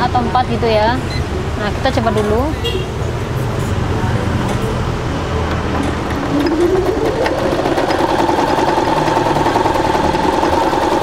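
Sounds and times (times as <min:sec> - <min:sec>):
sewing machine motor whine: 0:05.7 - 0:11.0.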